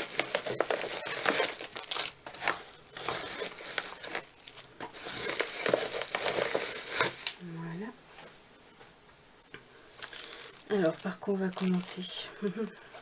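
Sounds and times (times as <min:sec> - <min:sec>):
envelope and plastic packets crinkling: 0:00.0 - 0:07.4, 0:10.0 - 0:12.3.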